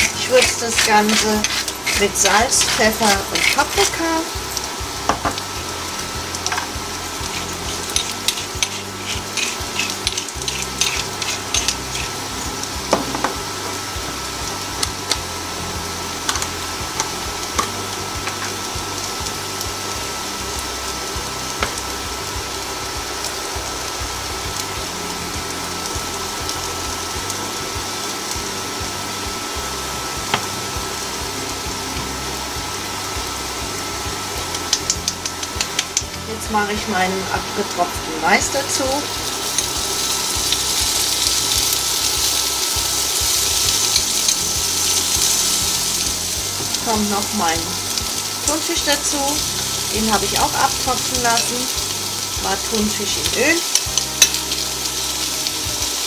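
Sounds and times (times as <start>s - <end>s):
potatoes sizzling in a pan: 0.0s - 56.0s.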